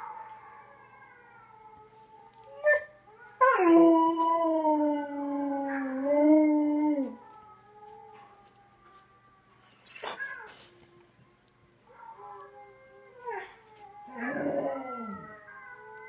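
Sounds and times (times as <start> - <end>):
dog howling: 0.0 - 10.6, 11.9 - 16.0
dog yipping: 9.8 - 10.4.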